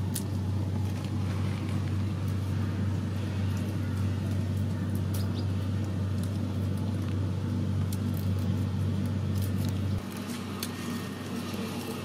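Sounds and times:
papery crackles of peeling skins: 0.0 - 12.0
steady low hum: 0.0 - 12.0.

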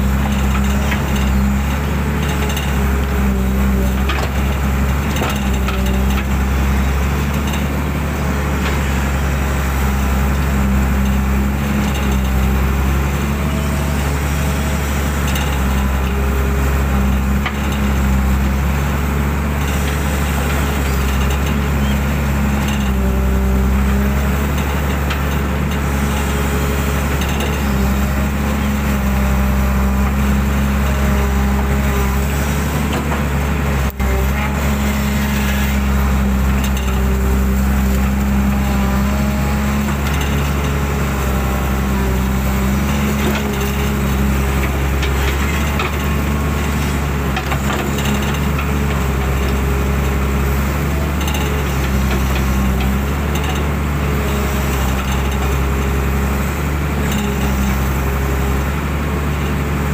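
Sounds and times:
excavator diesel engine running: 0.0 - 59.9
hydraulic whine: 25.8 - 59.9.

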